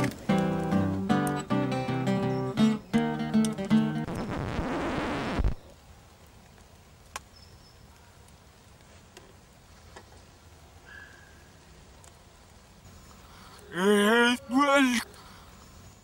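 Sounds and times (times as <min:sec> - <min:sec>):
acoustic guitar music: 0:00.0 - 0:04.4
woodland ambience: 0:00.0 - 0:16.0
soft ticks: 0:12.0 - 0:12.6.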